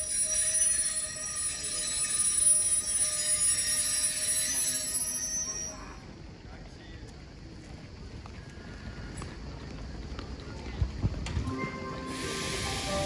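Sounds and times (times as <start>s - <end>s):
train rail squeal and hiss: 0.0s - 6.3s, 11.5s - 13.0s.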